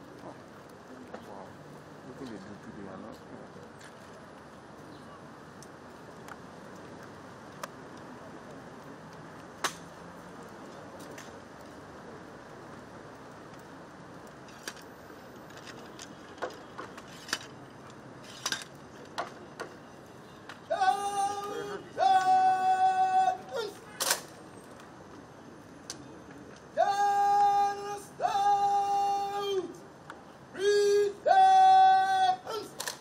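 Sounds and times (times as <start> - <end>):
outdoor hiss: 0.0 - 33.0
bugle long held notes: 20.6 - 24.2, 26.7 - 29.8, 30.5 - 32.9
sharp clicks: 32.7 - 33.0.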